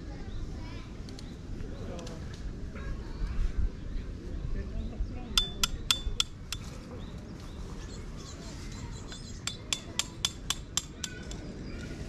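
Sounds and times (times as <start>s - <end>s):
hammer striking metal tent peg: 5.4s - 6.6s, 9.4s - 11.4s.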